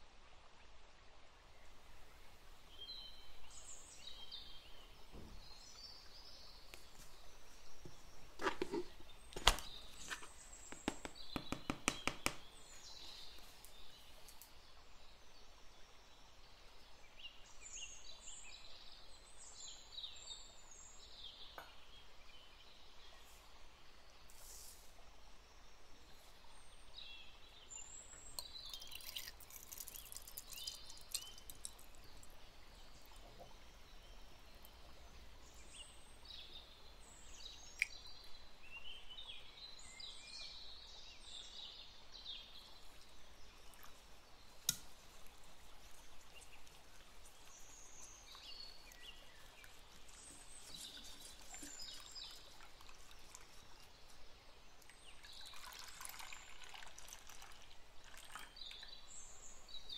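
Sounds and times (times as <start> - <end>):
milk pouring into plastic jug: 7.8 - 12.5, 28.3 - 32.4, 44.6 - 54.2, 54.8 - 58.8
sharp taps: 9.4 - 12.5.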